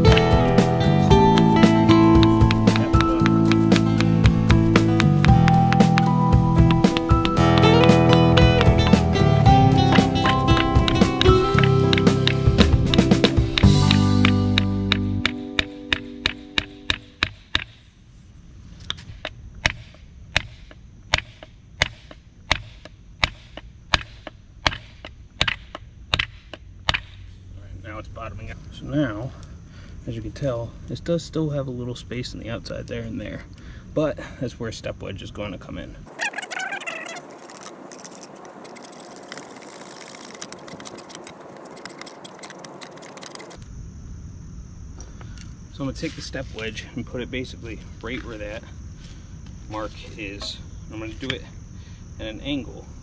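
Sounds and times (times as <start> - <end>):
mallet striking wooden axe handle: 9.9 - 17.8, 19.6 - 27.2.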